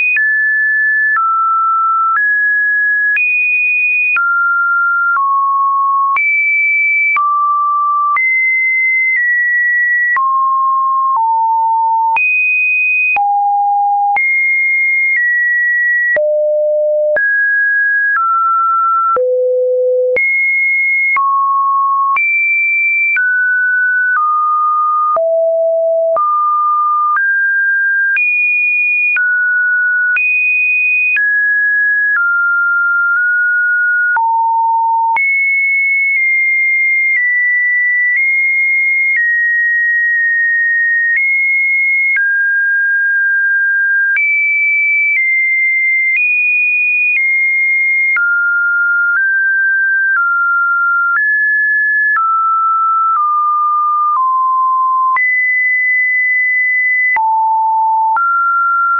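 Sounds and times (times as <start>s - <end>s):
sine tones changing pitch: 13.2s - 17.4s, 18.0s - 22.3s, 23.3s - 27.2s, 51.9s - 58.9s.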